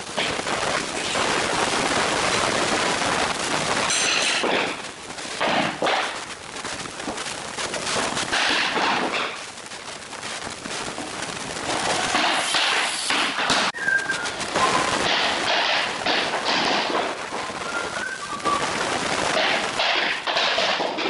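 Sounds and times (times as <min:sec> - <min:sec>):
hammer knocking floor planks: 0:03.9 - 0:06.2, 0:07.1 - 0:09.4, 0:11.6 - 0:18.0, 0:19.3 - 0:21.0.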